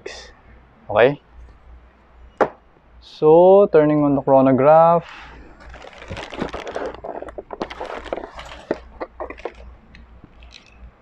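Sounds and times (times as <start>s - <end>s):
plastic bag crinkling: 5.1s - 10.8s.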